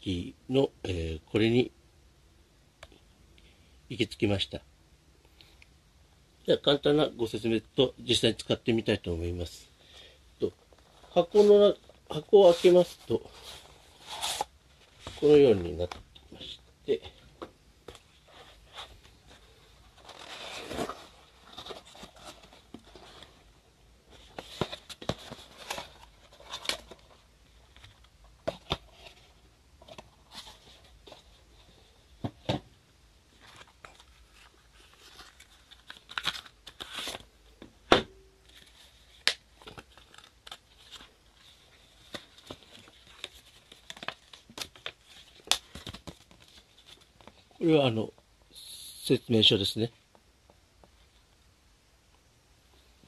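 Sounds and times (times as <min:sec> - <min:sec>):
cardboard rustling: 0:10.6 - 0:16.0, 0:17.8 - 0:23.5, 0:24.1 - 0:31.5, 0:33.3 - 0:37.3.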